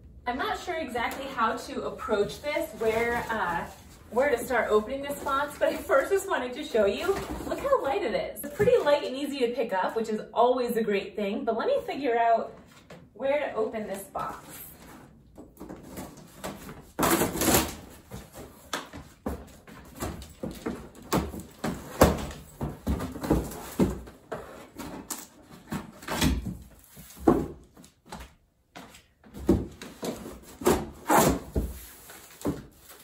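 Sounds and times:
cardboard flaps scraping and rustling: 2.0 - 8.0.

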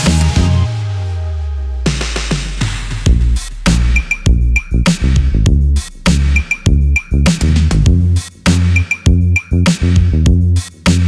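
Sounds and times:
electronic music with heavy bass: 0.0 - 11.0.

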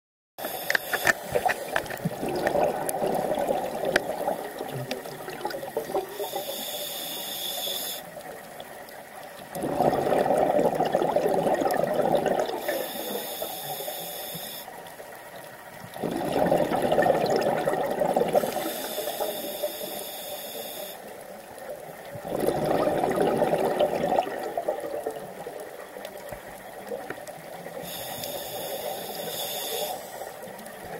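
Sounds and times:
regulator inhale hiss: 0.4 - 2.0, 6.1 - 8.3, 12.6 - 15.0, 18.3 - 21.4, 27.7 - 30.7
gurgling exhaled bubbles: 1.3 - 6.4, 9.5 - 12.8, 15.9 - 19.0, 22.1 - 26.0.

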